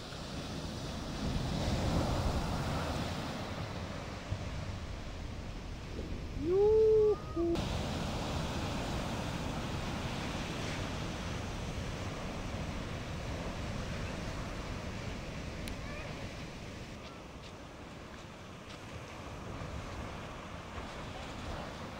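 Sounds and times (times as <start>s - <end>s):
wind on microphone: 0.0s - 17.3s
waves breaking: 0.0s - 21.9s
person hooting: 6.4s - 7.6s.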